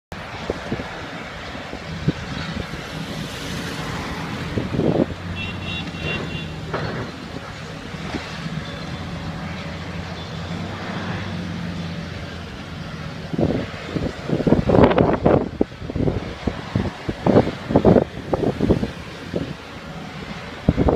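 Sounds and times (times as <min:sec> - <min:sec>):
heavy diesel engine running: 0:00.1 - 0:20.9.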